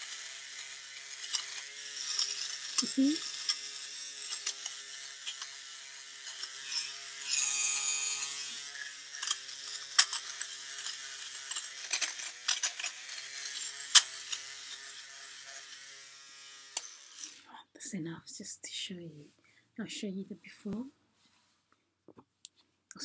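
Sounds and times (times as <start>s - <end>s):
electric fabric shaver running: 0.0s - 17.5s.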